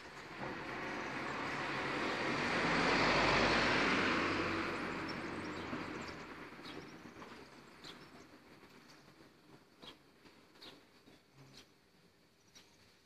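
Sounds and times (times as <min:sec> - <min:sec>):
vehicle passing by: 0:00.0 - 0:07.0.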